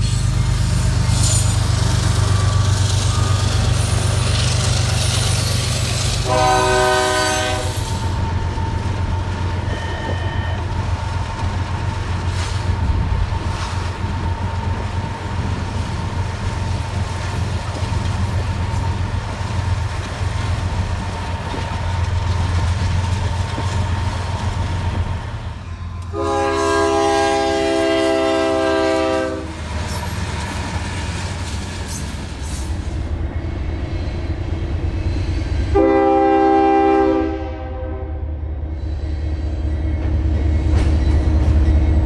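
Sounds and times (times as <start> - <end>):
locomotives rumbling past: 0.0 - 42.0
locomotive horn blast: 6.2 - 8.0, 26.0 - 29.6, 35.7 - 38.3.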